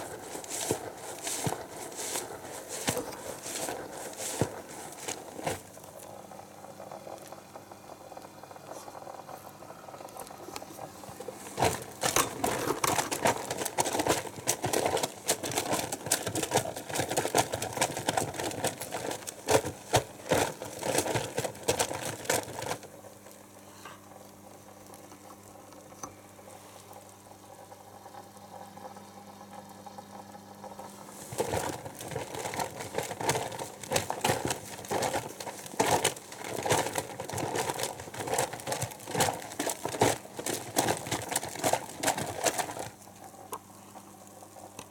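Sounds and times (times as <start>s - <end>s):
washing machine drum sloshing: 0.0s - 6.0s, 10.8s - 22.9s, 30.9s - 43.1s
low steady hum: 0.0s - 44.9s.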